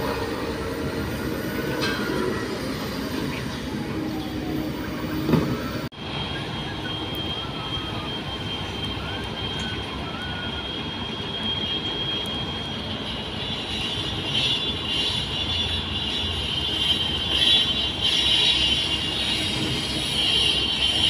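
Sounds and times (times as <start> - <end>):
high-pitched whine: 0.0 - 16.5.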